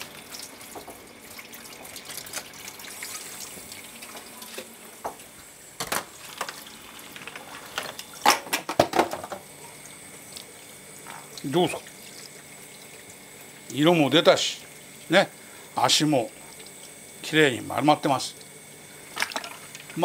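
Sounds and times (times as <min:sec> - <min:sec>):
tap water running into pot: 0:00.0 - 0:20.0
knocks on pot: 0:08.3 - 0:09.4.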